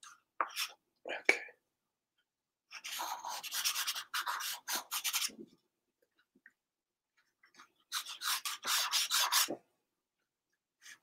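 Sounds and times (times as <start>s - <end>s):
pencil scratching on paper: 2.7s - 5.4s, 7.9s - 9.6s.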